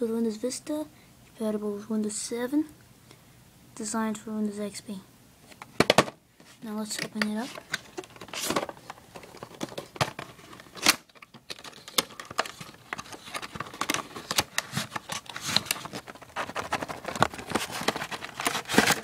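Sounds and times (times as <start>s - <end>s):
packaging crinkling: 7.2s - 19.0s
cardboard box being opened: 7.4s - 19.0s.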